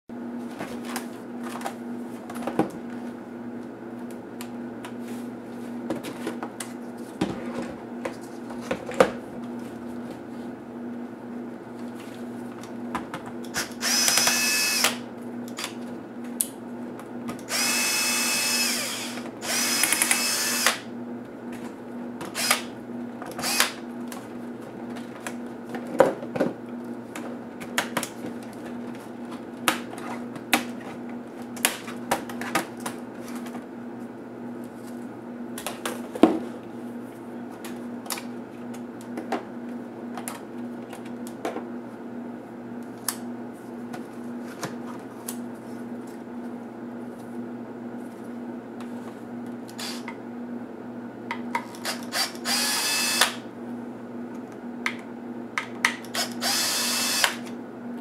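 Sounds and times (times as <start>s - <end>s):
electric screwdriver whirring: 13.5s - 15.7s, 17.5s - 20.9s, 22.3s - 22.7s, 23.4s - 23.8s, 49.7s - 50.1s, 51.8s - 53.4s, 56.1s - 57.5s.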